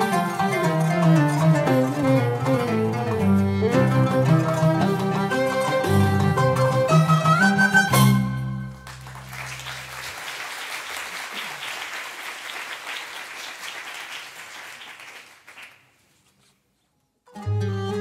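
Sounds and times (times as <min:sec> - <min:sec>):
string and percussion ensemble: 0:00.0 - 0:10.1
audience applause: 0:08.8 - 0:15.9.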